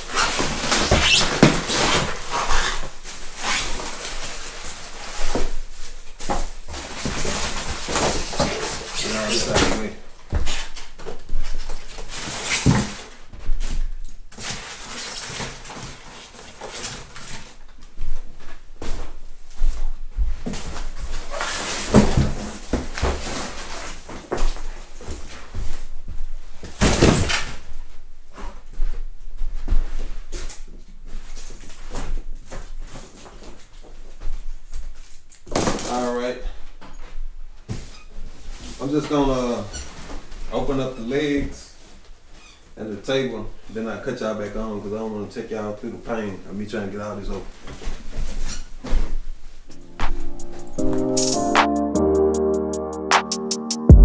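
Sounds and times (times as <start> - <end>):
styrofoam squeaking and scraping: 0.0 - 17.6, 21.2 - 24.2, 37.7 - 41.1, 42.3 - 42.8, 48.0 - 49.2.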